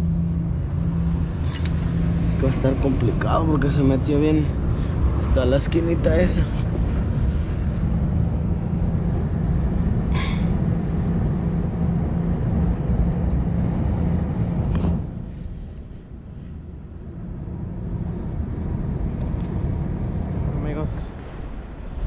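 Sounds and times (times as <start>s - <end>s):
wind: 0.0s - 22.0s.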